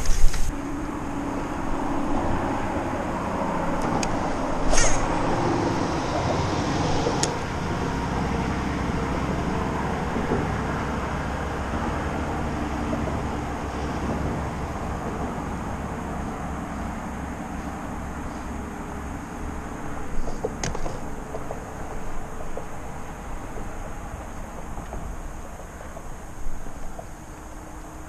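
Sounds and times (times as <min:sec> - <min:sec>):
sharp clatter: 0:04.6 - 0:05.2.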